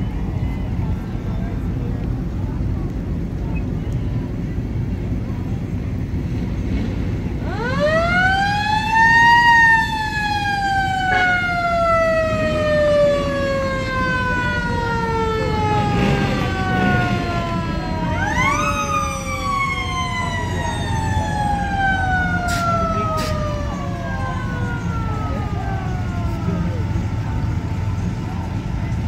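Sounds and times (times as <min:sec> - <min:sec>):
siren winding up and down: 0:07.4 - 0:26.7.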